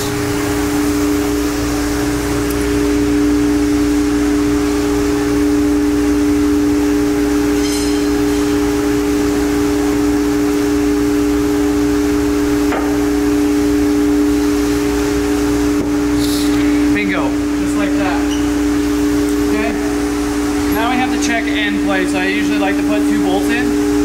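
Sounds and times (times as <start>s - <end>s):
two-note drone music: 2.5s - 15.9s.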